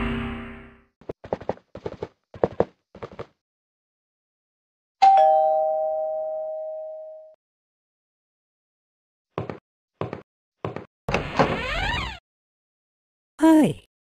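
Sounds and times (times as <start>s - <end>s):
footsteps: 1.0s - 3.3s
two-tone doorbell chime: 5.0s - 7.4s.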